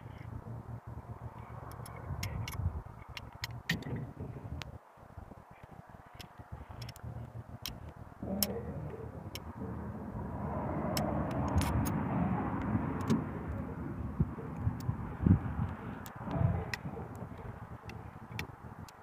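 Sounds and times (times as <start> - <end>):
vehicle engine running: 0.0 - 4.7, 5.8 - 19.0
light clicks of rifle parts: 1.6 - 4.7, 5.5 - 8.6.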